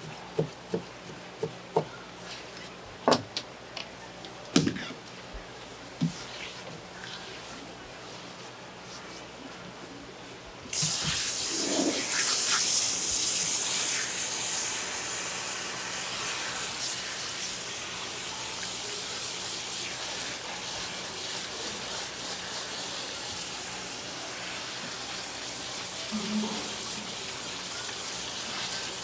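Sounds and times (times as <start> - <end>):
hands rubbing and rinsing: 16.7 - 29.0.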